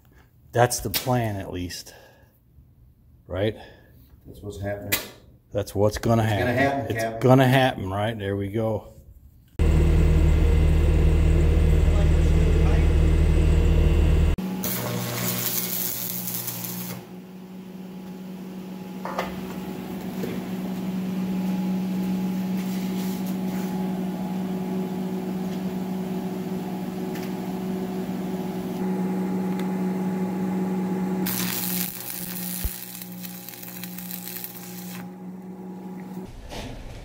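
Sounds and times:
steady low hum: 9.6s - 14.4s
welding arc crackling and hissing: 14.6s - 17.0s, 31.2s - 35.1s.

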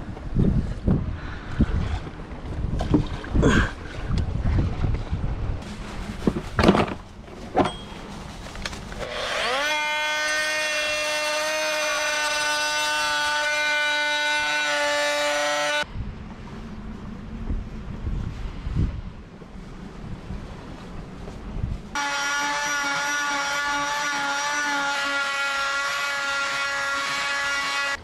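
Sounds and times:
wind noise on microphone: 0.0s - 9.0s, 15.8s - 22.0s
electric grinder whining: 9.0s - 15.8s, 22.0s - 28.0s.

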